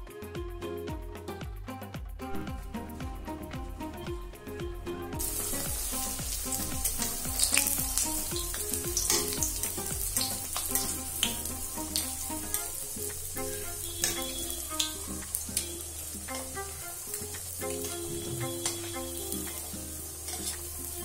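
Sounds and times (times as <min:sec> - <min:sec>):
oil sizzling with crackles and pops: 0:05.2 - 0:21.0.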